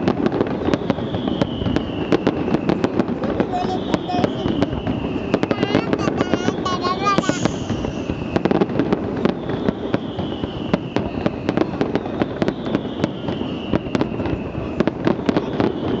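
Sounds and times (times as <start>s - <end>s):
fireworks cracks and bangs: 0.0s - 16.0s.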